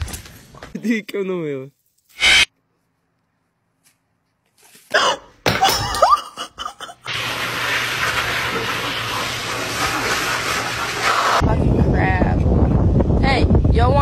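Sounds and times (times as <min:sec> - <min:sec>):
short rising squeal: 0:02.2 - 0:02.5
pet dryer blowing air: 0:07.1 - 0:11.4.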